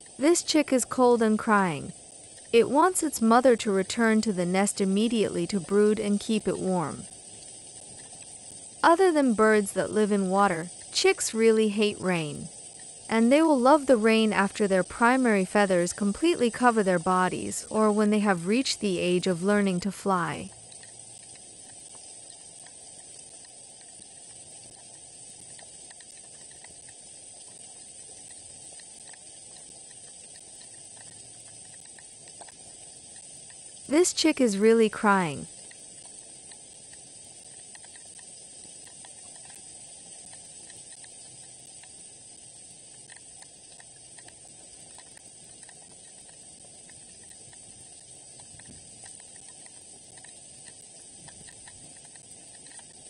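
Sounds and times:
rain hissing: 0:00.0 - 0:53.0
faint ticks of drops: 0:14.2 - 0:33.9, 0:34.8 - 0:42.1.

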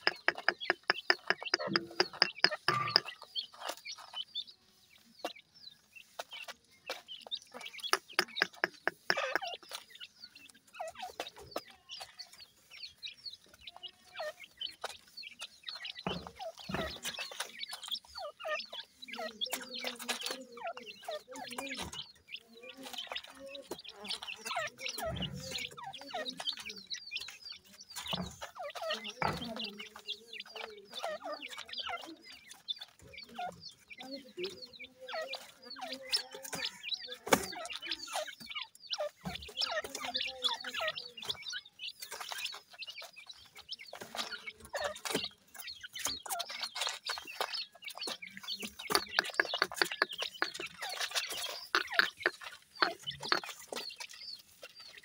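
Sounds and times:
small pecking taps: 0:00.0 - 0:03.1, 0:07.8 - 0:09.8, 0:48.8 - 0:50.7
chicks peeping: 0:00.0 - 0:55.0.

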